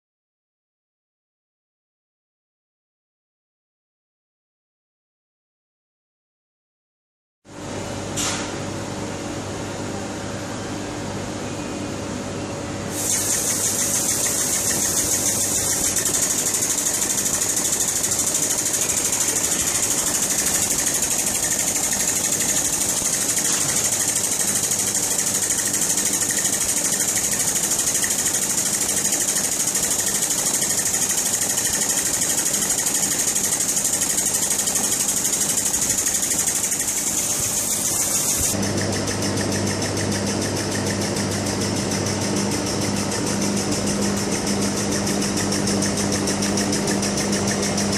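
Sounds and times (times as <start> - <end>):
hiss of air: 12.9 - 24.1, 35.6 - 38.6
compressed-air engine clatter: 12.9 - 47.9.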